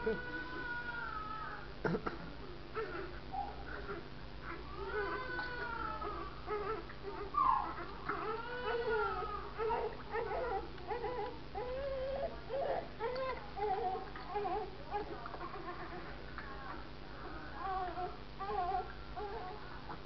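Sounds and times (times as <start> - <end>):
newborn baby crying: 2.8 - 16.1.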